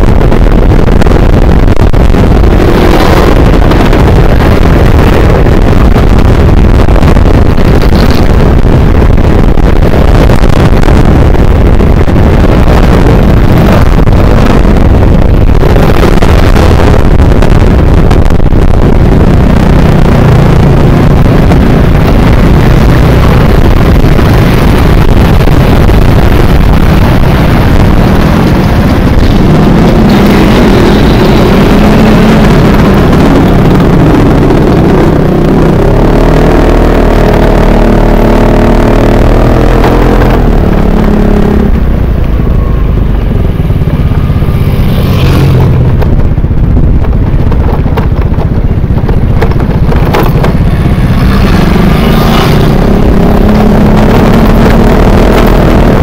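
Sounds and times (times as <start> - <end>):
wind noise on microphone: 0.0 - 56.0
scooter engines running: 42.2 - 52.8.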